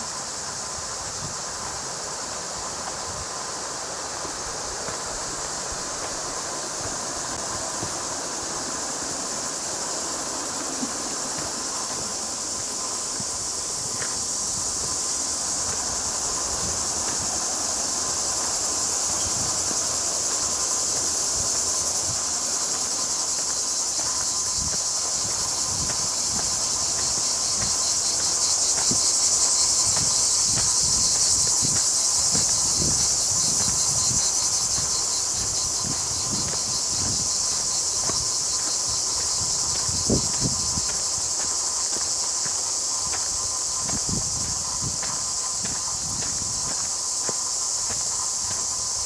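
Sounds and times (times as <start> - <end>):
cicadas buzzing: 0.0 - 49.0
footsteps on a trail: 0.0 - 49.0.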